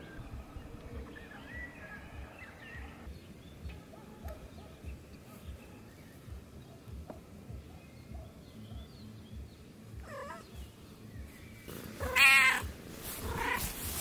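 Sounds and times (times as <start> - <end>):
cat meowing: 10.0 - 10.4, 12.0 - 13.7.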